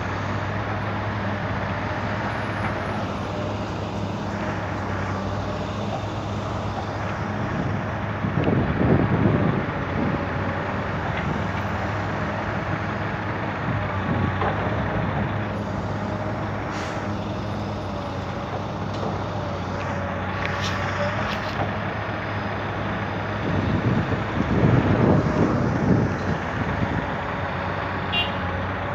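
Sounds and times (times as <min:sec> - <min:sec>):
diesel engines running: 0:00.0 - 0:28.9.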